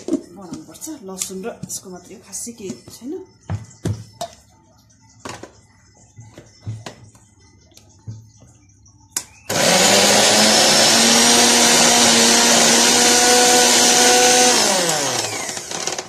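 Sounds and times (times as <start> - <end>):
mixer grinder running: 9.5 - 16.0.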